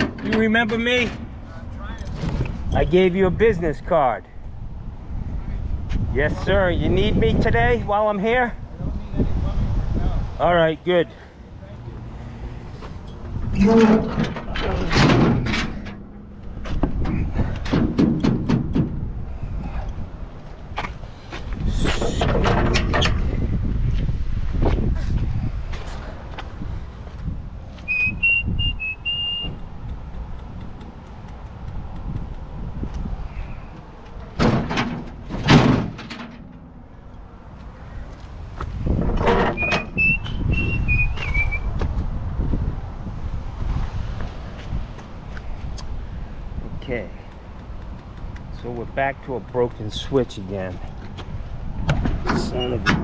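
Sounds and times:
heavy thuds: 12.8 - 19.2, 34.3 - 36.9
clattering scrape: 13.1 - 16.1
truck liftgate knocking and clattering: 13.8 - 19.1, 34.4 - 36.7.

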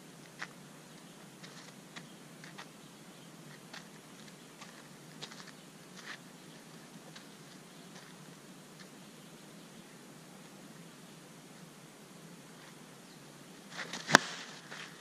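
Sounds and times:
steady low hiss: 0.0 - 15.0
footsteps crunching on dirt: 0.2 - 2.8, 3.4 - 9.0, 13.7 - 15.0.

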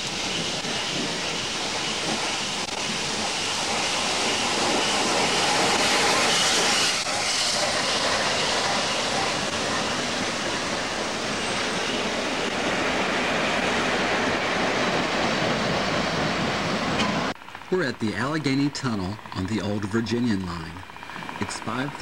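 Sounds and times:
train rolling past: 0.0 - 22.0.

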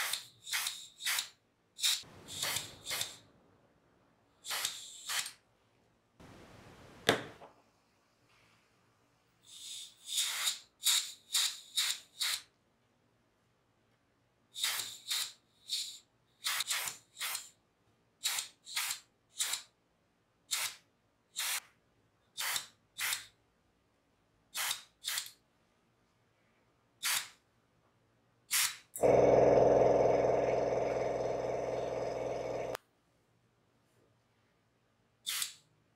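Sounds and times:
airbrush hissing spurts: 0.0 - 3.2
loud steady machine hum: 29.0 - 32.8.

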